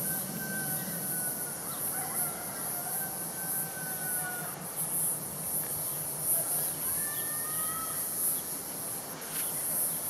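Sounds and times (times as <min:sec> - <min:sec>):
distant jet engine whine: 0:00.0 - 0:04.7.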